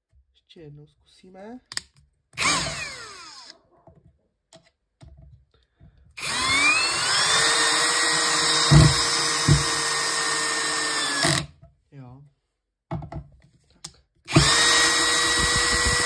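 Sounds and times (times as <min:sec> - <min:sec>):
cordless drill motor whining: 0:02.4 - 0:03.6, 0:06.2 - 0:11.5, 0:14.3 - 0:16.0.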